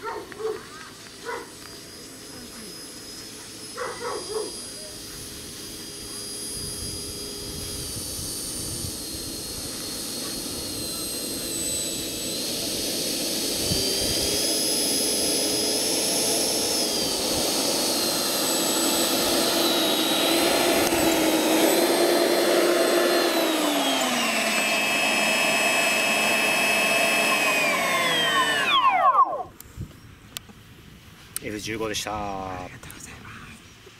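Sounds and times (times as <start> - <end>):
model jet engine whine: 0.0 - 33.9.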